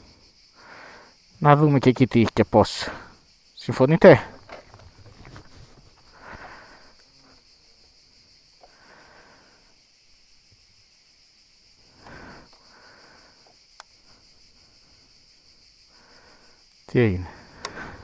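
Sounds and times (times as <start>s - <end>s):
cicadas shrilling: 0.0s - 18.0s
person breathing out heavily: 0.6s - 1.2s, 6.1s - 7.0s, 8.6s - 9.8s, 11.8s - 13.5s, 15.9s - 16.6s, 17.2s - 18.0s.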